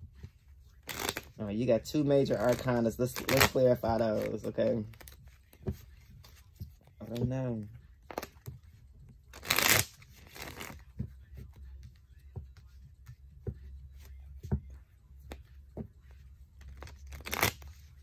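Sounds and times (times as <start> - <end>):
cards being shuffled: 0.1 - 1.4, 2.0 - 14.6, 15.2 - 18.0.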